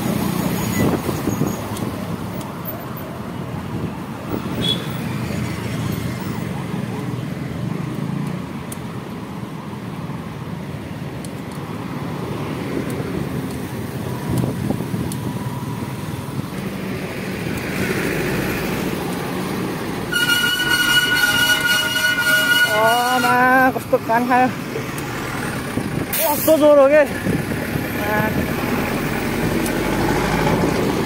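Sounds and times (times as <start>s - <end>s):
motorbike and car engines: 0.0s - 21.8s, 23.5s - 31.0s
multi-tone vehicle horn blaring: 20.1s - 23.7s.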